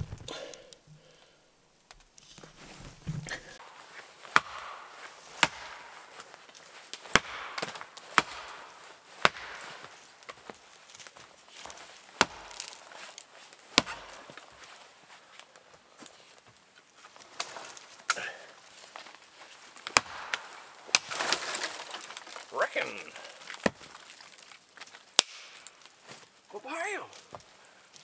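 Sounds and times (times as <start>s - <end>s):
axe chopping into tree trunk: 4.2s - 6.3s, 6.9s - 10.4s, 12.2s - 14.6s, 19.8s - 22.5s, 23.4s - 24.0s, 25.2s - 25.8s.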